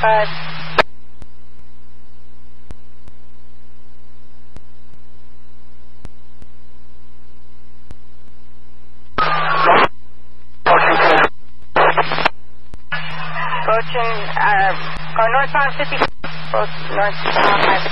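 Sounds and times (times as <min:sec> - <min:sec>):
burst of radio static: 0:00.0 - 0:00.8, 0:09.2 - 0:10.0, 0:10.6 - 0:17.9
radio low hum with hiss: 0:00.0 - 0:17.9.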